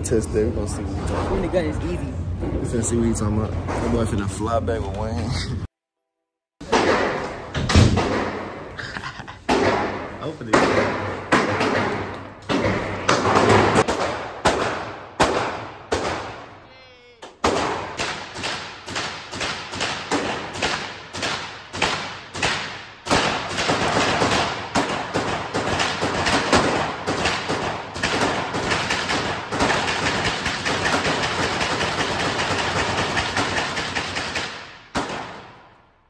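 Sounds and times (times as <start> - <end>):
gunshots with ringing echo: 6.6 - 8.7, 9.5 - 16.6, 17.4 - 35.8.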